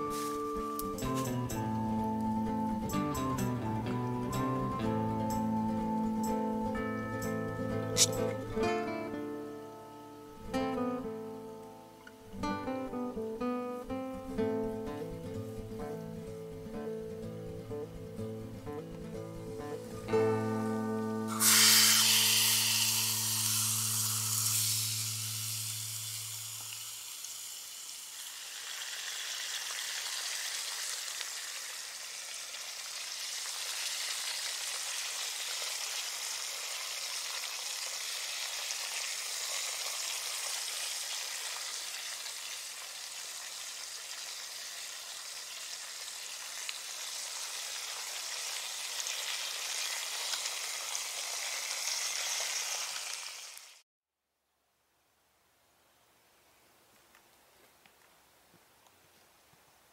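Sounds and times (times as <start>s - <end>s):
background music: 0.0s - 25.6s
meat sizzling in a frying pan: 21.3s - 53.8s.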